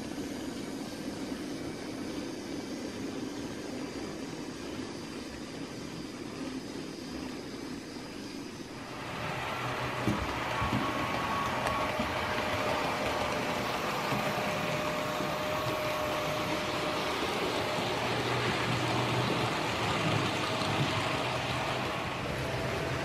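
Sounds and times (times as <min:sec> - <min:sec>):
faint motor whine: 0:00.0 - 0:23.0
model train wheels rattling on track: 0:08.8 - 0:23.0.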